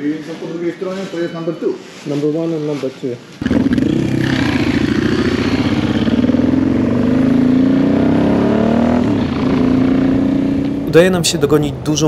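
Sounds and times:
motorcycle engine accelerating hard: 3.4s - 10.8s.

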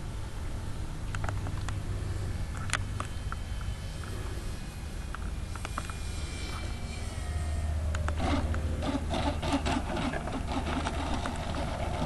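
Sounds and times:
model airplane motor: 2.5s - 12.0s
wheels rattling over dirt: 8.1s - 12.0s.

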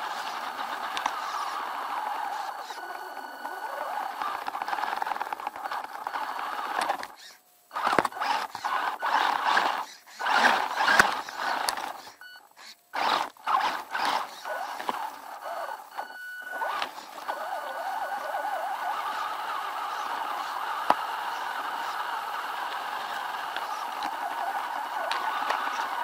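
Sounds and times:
toy truck motor whirring: 0.0s - 26.0s.

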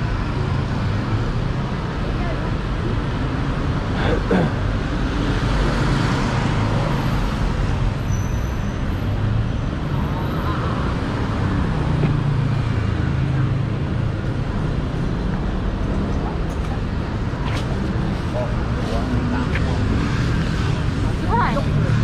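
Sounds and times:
cars passing: 0.0s - 22.0s
motorbikes passing: 9.1s - 22.0s.

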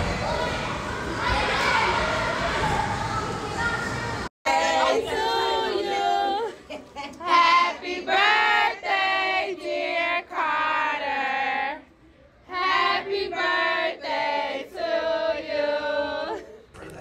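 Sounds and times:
children singing: 4.5s - 6.6s.

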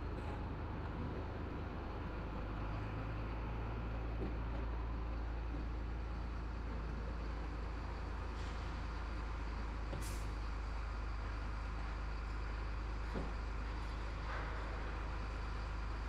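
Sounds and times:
truck diesel engine droning: 0.0s - 16.0s.

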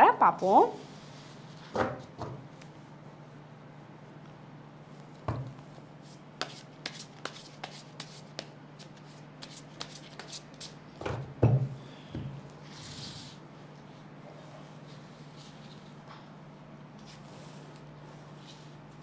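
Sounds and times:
cards being shuffled: 6.4s - 10.8s.

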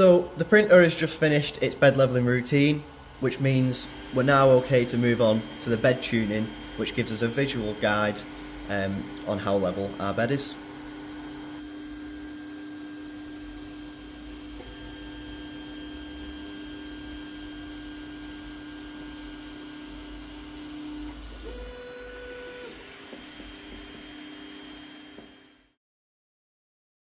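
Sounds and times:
stepper motors whining: 3.1s - 15.9s, 20.9s - 25.3s.

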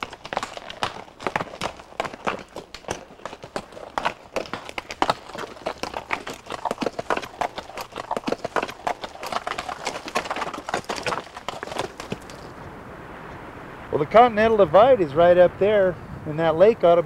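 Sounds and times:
horse hooves clopping on rock: 0.0s - 12.5s.

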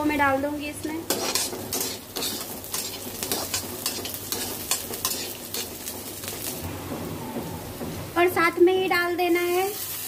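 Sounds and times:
food sizzling in oil: 0.0s - 6.7s, 9.1s - 10.0s
spatula scraping metal pan: 1.1s - 6.5s.

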